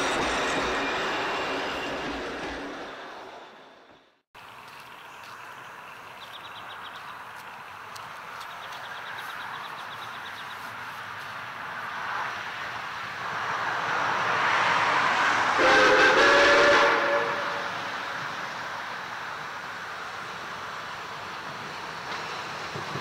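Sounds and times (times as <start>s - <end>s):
steam locomotive running noise: 0.0s - 4.0s
steam whistle blast: 15.6s - 17.7s.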